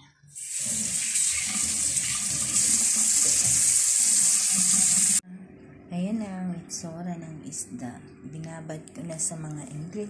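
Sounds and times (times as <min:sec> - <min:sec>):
tap water running into sink: 0:00.4 - 0:05.2.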